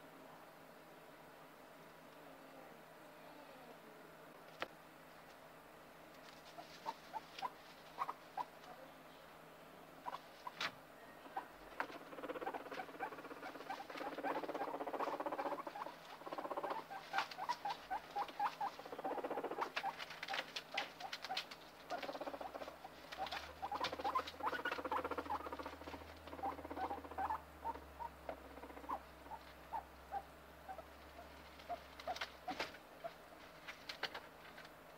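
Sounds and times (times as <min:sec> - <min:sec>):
guinea pig crunching food: 0:11.6 - 0:34.8
rustling in paper bedding: 0:19.7 - 0:22.1, 0:31.2 - 0:34.8.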